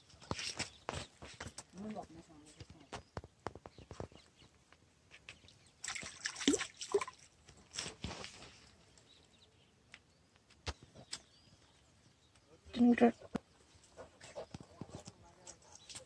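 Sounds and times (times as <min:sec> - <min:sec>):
fish splashing at water surface: 0:05.8 - 0:07.3.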